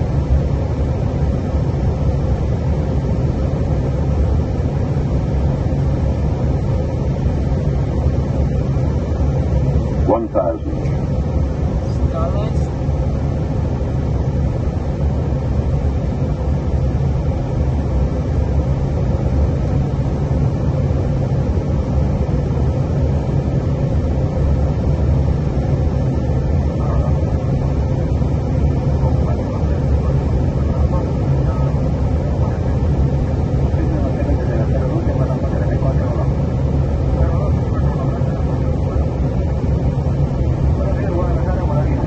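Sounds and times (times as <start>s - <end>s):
cockpit airflow and engine rumble: 0.0s - 42.0s.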